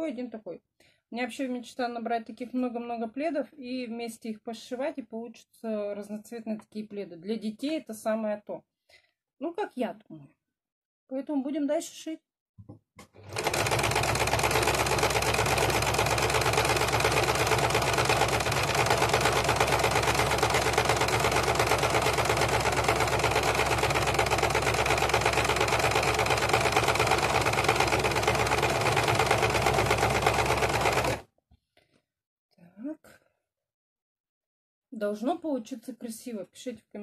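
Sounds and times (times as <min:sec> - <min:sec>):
sewing machine running: 0:13.2 - 0:31.2.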